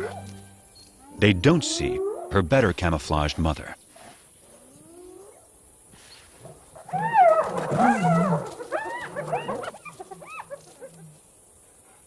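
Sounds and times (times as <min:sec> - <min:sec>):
hyenas yelping: 0:00.0 - 0:00.3, 0:06.4 - 0:11.2.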